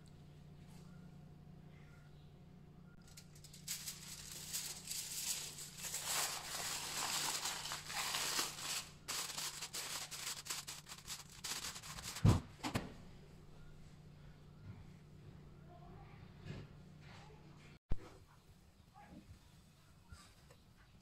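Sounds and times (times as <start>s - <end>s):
aluminium foil crinkling: 3.0s - 12.3s.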